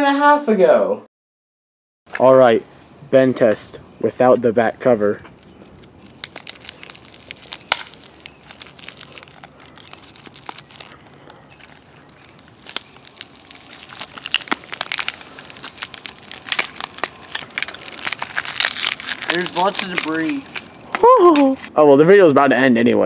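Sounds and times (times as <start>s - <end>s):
tablet screen glass cracking: 5.4s - 21.7s.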